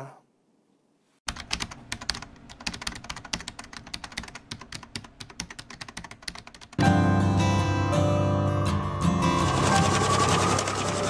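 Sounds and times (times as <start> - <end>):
rapid irregular clicking: 1.3 - 6.8
music: 6.8 - 11.0.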